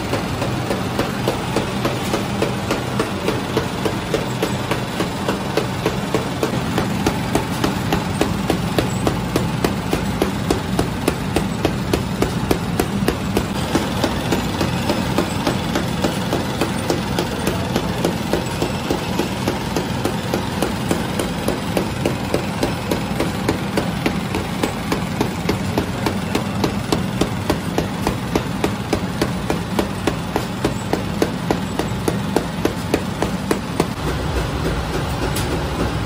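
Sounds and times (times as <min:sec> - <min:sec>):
bread machine motor hum: 0:00.0 - 0:36.0.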